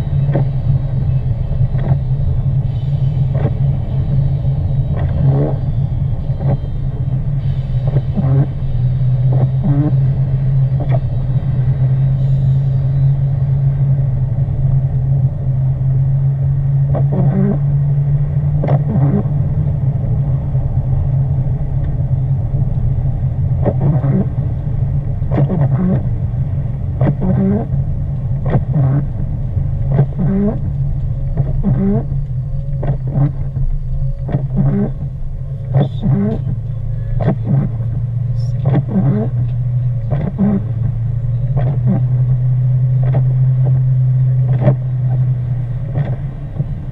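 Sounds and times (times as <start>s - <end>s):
car engine and road drone: 0.0s - 46.9s.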